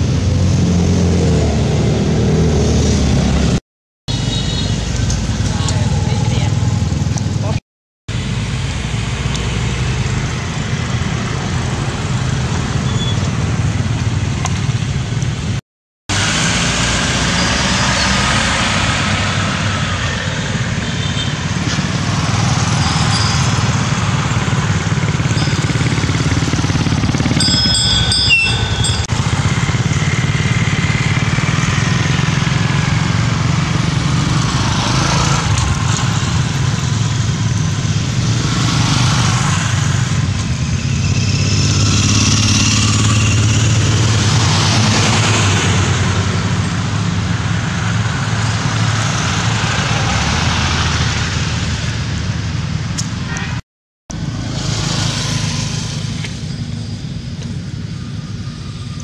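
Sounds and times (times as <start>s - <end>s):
road traffic passing: 0.0s - 59.0s
high-pitched chirps: 27.4s - 29.1s.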